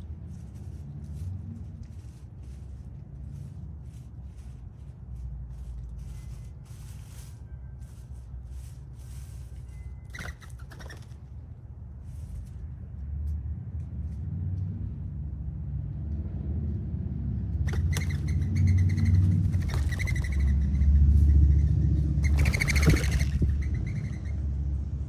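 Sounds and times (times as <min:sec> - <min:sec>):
wings fluttering: 0:00.0 - 0:11.4, 0:17.6 - 0:24.8
passing vehicle rumble: 0:00.0 - 0:25.0
bird chirps: 0:17.7 - 0:21.6, 0:22.2 - 0:24.5.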